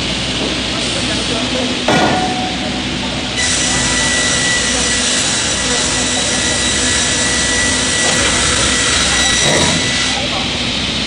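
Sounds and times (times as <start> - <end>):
rip saw machine whine: 2.4 - 10.2.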